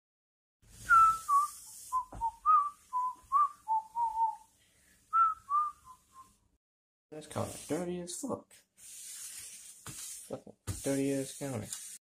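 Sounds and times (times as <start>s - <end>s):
person whistling a tune: 0.8s - 4.5s, 5.1s - 6.4s.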